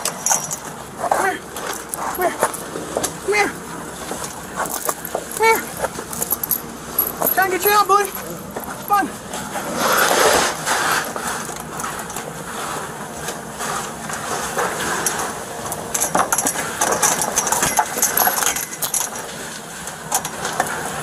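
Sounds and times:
chain clinking and rattling on dirt: 0:00.0 - 0:10.2, 0:14.2 - 0:20.9
broad scuffing noise: 0:01.0 - 0:03.2, 0:07.3 - 0:15.0.

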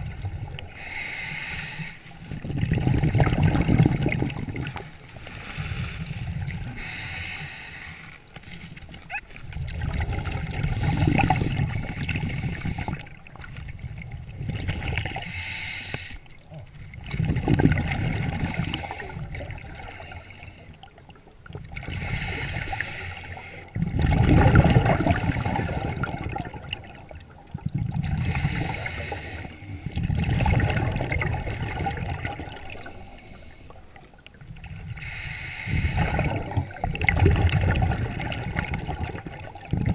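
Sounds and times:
regulator inhale hiss: 0:00.7 - 0:02.2, 0:05.0 - 0:08.2, 0:10.7 - 0:13.1, 0:15.2 - 0:16.4, 0:18.4 - 0:20.8, 0:21.9 - 0:23.7, 0:25.5 - 0:26.3, 0:28.2 - 0:30.0, 0:32.7 - 0:33.8, 0:34.9 - 0:37.0
gurgling exhaust bubbles: 0:02.3 - 0:04.9, 0:16.9 - 0:19.9, 0:23.8 - 0:29.0, 0:29.9 - 0:33.1, 0:35.7 - 0:39.9.

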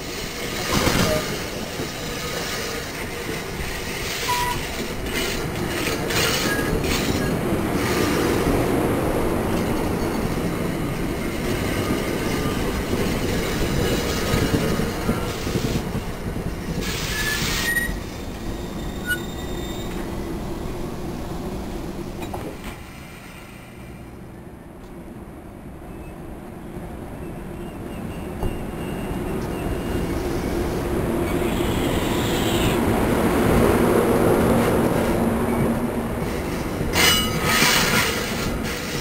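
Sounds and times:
train wheels rolling on rails: 0:00.0 - 0:25.0, 0:26.8 - 0:39.0
high wheel squeals: 0:00.5 - 0:05.4, 0:16.8 - 0:20.1, 0:27.2 - 0:32.8.

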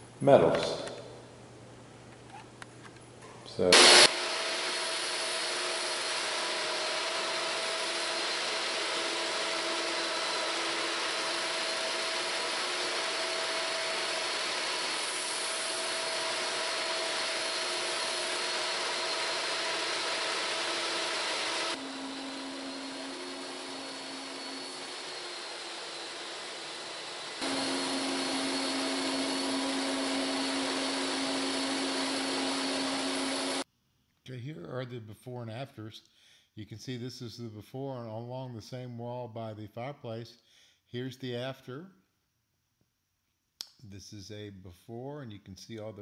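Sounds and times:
floor grinder running: 0:03.7 - 0:33.6
wet vacuum whining: 0:03.7 - 0:33.6.

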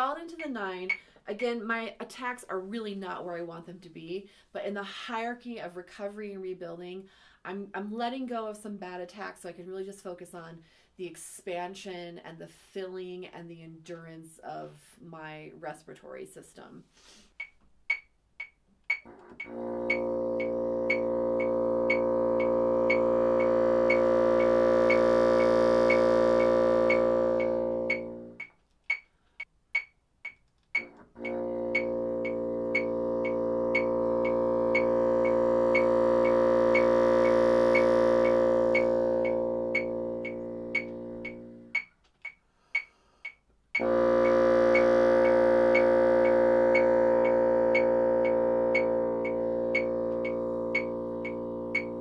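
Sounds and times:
metronome ticking: 0:00.0 - 0:03.2, 0:17.3 - 0:52.0
person breathing: 0:01.0 - 0:01.3, 0:04.3 - 0:04.6, 0:07.1 - 0:07.5, 0:10.6 - 0:11.0, 0:16.9 - 0:17.4, 0:42.5 - 0:43.4
bassoon long low notes: 0:19.2 - 0:28.4, 0:31.1 - 0:41.8, 0:43.8 - 0:52.0.

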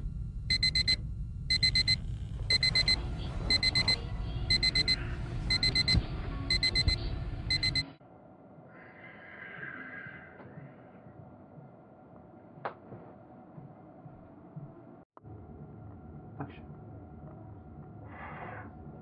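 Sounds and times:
digital alarm clock beeping: 0:00.5 - 0:08.0.

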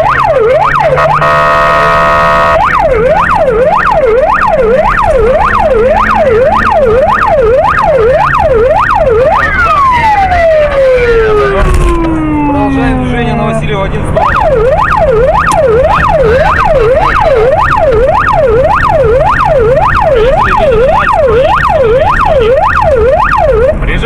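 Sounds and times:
police siren yelping: 0:00.0 - 0:23.8
buzzing horn tone: 0:00.9 - 0:02.6.

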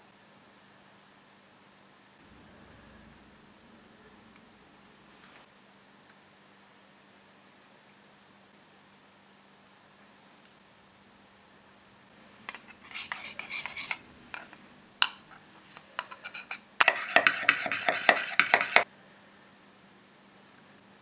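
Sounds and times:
faint steady hum: 0:00.0 - 0:21.0
metal spoon stirring in bowl: 0:12.4 - 0:18.8
spoon clinking against bowl: 0:12.5 - 0:18.8.

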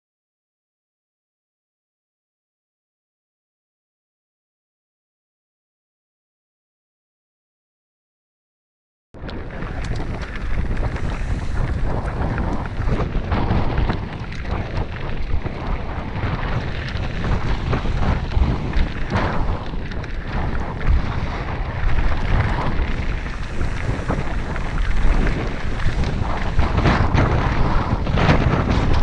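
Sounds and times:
bike tyres crunching on gravel: 0:09.2 - 0:29.0
stones and bike knocking: 0:09.2 - 0:29.0
wind buffeting microphone: 0:09.2 - 0:29.0.

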